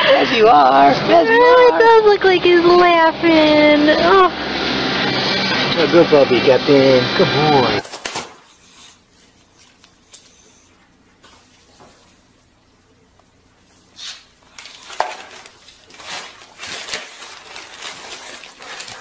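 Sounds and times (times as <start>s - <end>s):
cardboard box crinkling: 14.5s - 19.0s.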